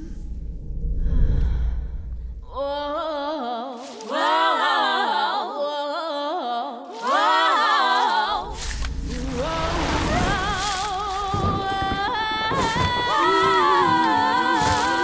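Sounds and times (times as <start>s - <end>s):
low rumble: 0.0s - 3.4s, 8.3s - 13.9s
wordless a cappella singing: 2.5s - 15.0s.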